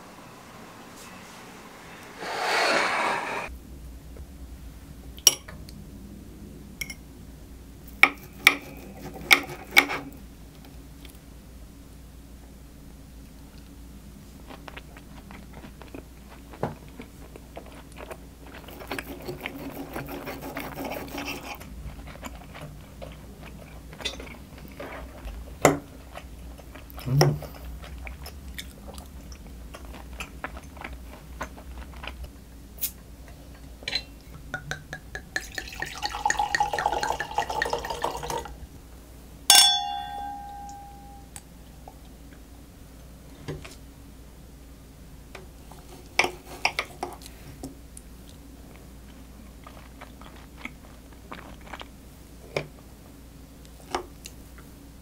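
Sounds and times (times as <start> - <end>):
glass clinking: 33.9 - 38.4, 39.5 - 41.4
wine pouring into a glass: 34.6 - 38.6.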